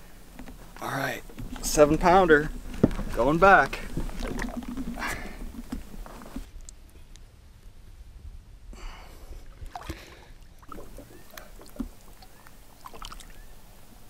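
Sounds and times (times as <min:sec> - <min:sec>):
water splashing and dripping: 0:01.4 - 0:06.7, 0:09.6 - 0:13.4.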